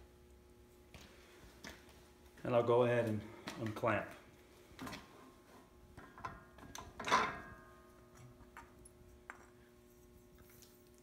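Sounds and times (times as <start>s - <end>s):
faint steady hum: 0.0s - 11.0s
metal clank ringing: 7.0s - 7.8s.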